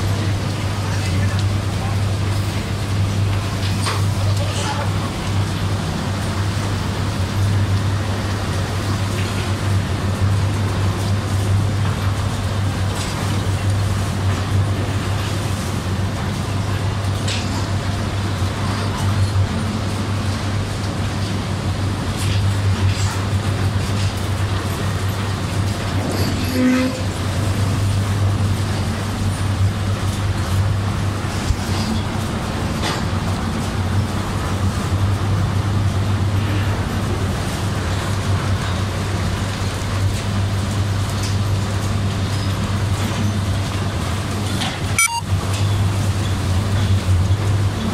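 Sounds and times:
machinery humming: 0.0 - 47.9
short pitched tone: 45.0 - 45.3.

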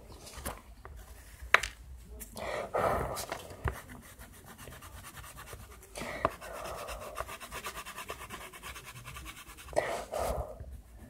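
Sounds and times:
pastel scratching on paper: 3.2 - 11.0.

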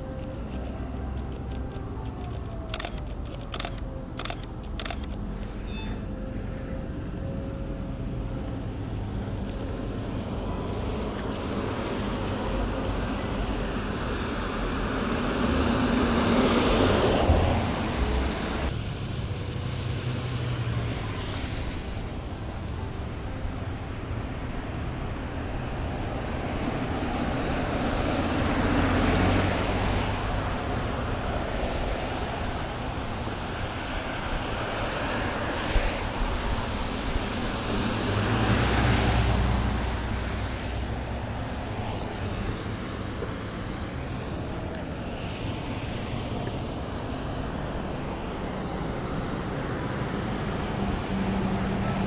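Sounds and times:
vehicle engine noise: 0.0 - 52.0
tyres hissing on wet road: 8.7 - 52.0.

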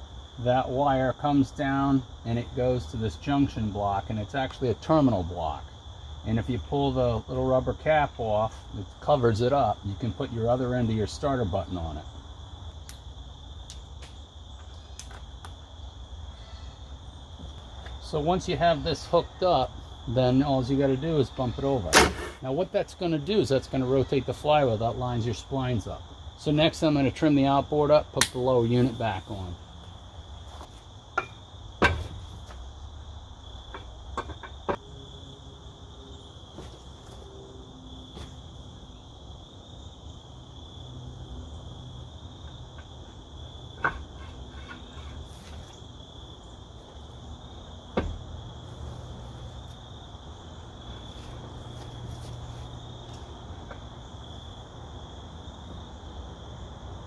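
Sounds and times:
crickets chirping: 0.0 - 57.0
sharp knocks and clanks: 21.9 - 22.4, 31.1 - 32.6, 33.7 - 34.8, 43.8 - 45.6, 47.9 - 48.3.

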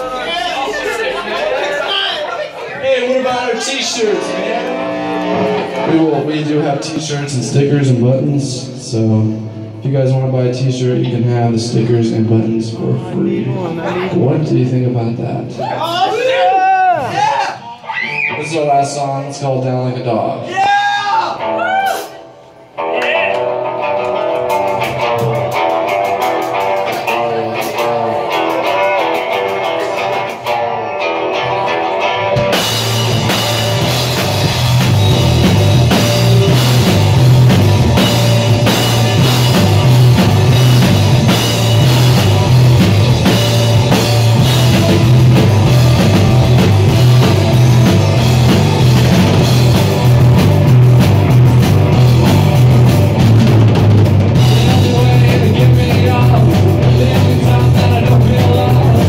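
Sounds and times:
drums: 0.0 - 59.0
rock band playing: 0.0 - 59.0
electric guitar: 4.1 - 8.0, 21.2 - 59.0.

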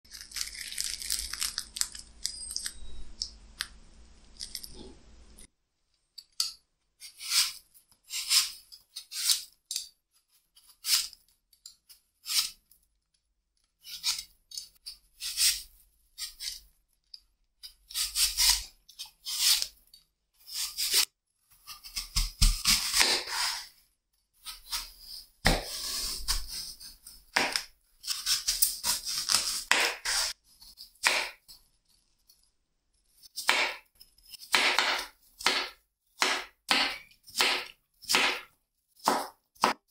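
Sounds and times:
fried pastry crackling and tearing: 0.1 - 2.5
peeler scraping apple skin: 7.0 - 9.8, 10.6 - 11.2, 11.9 - 12.6, 13.8 - 16.6, 17.6 - 19.8, 20.4 - 23.7, 24.4 - 31.3.

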